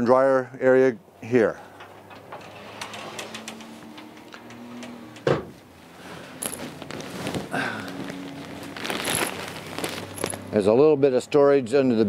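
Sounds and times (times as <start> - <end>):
clicks and rustling: 1.7 - 5.2, 6.3 - 10.5
sliding closet door on track: 1.8 - 5.7.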